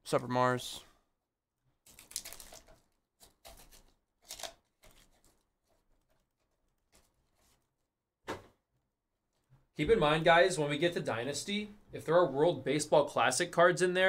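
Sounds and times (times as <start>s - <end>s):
plastic wrapper crinkling and tearing: 1.8s - 7.6s.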